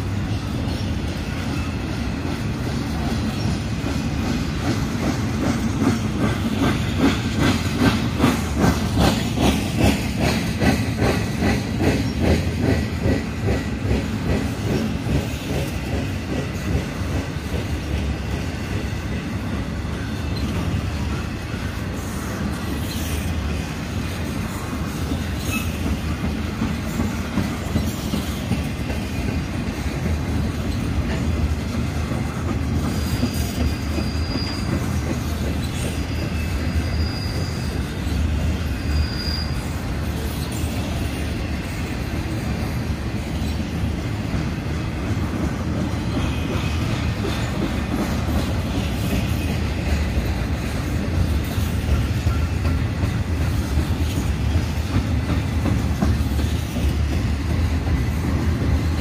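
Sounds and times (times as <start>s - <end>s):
train wheels rumbling on rail: 0.0s - 59.0s
wheels clacking over rail joints: 0.0s - 59.0s
high wheel squeals: 18.0s - 27.2s, 32.2s - 41.9s.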